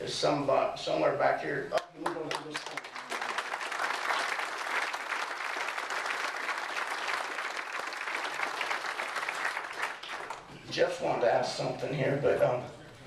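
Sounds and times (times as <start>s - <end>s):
audience applauding: 2.0s - 10.6s.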